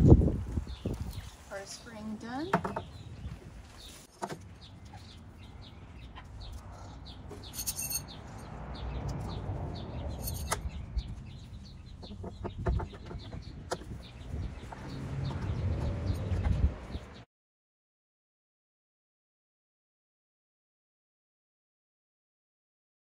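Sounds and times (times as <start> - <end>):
metal rods clinking together: 7.3 - 8.2, 10.2 - 10.6
hens clucking: 11.9 - 14.0.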